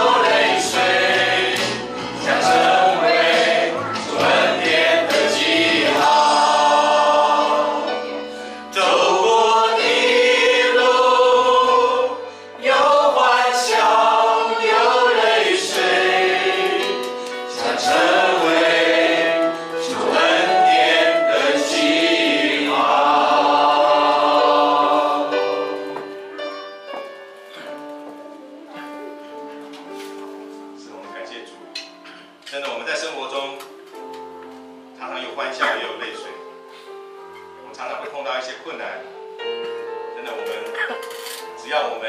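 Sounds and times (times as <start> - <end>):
group singing a hymn: 0.0 - 26.4.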